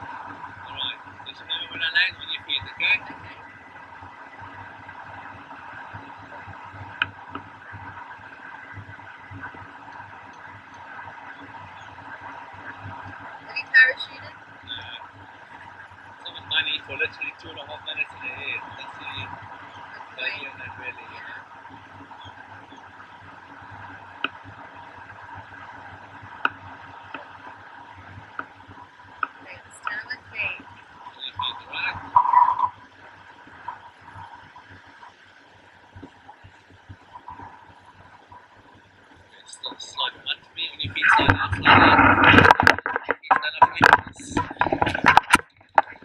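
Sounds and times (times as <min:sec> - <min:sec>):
air rushing on microphone: 0:39.3 - 0:46.0.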